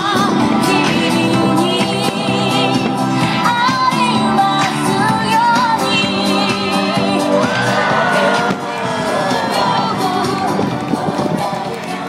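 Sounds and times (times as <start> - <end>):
woman singing: 0.0 - 8.5, 9.3 - 12.0
pop music: 0.0 - 12.0.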